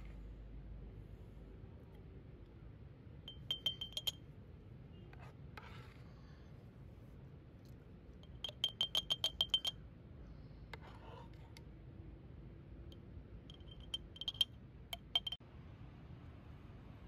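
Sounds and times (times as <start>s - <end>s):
spoon tapping glass jar: 3.3s - 4.2s, 8.2s - 9.8s, 13.5s - 15.4s.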